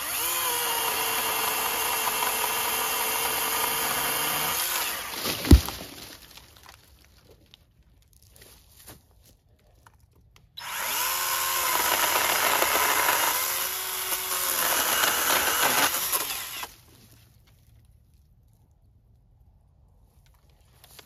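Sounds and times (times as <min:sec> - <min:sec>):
electric saw cutting wood: 0:00.0 - 0:05.2, 0:10.6 - 0:16.8.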